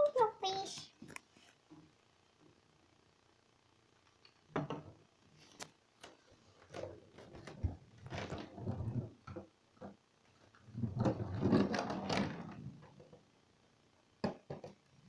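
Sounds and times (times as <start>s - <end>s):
plastic ball rolling in bathtub: 6.6s - 13.3s.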